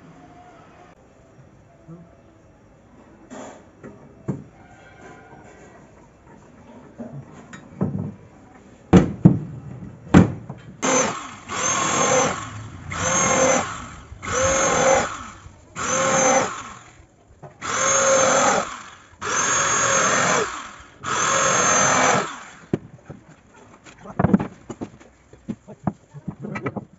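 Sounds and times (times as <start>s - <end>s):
electric drill bursts: 10.8s - 17.0s, 17.6s - 22.7s.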